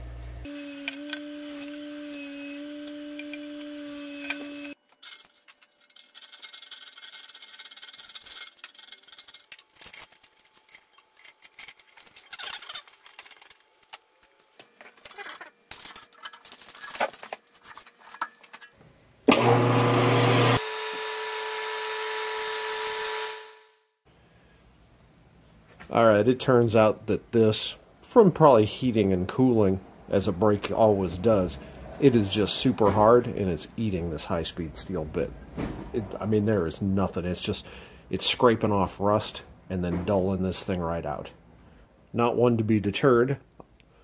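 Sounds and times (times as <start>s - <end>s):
metal parts clinking and scraping: 4.2s - 18.8s.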